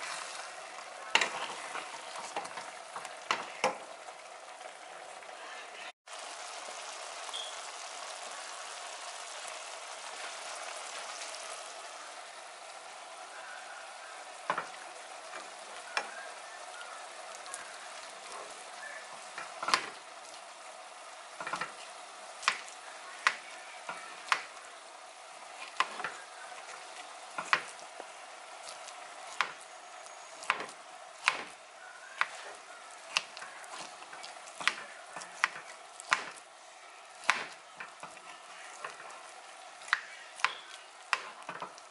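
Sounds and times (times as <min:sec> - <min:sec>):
food sizzling in a pan: 0:00.0 - 0:41.9.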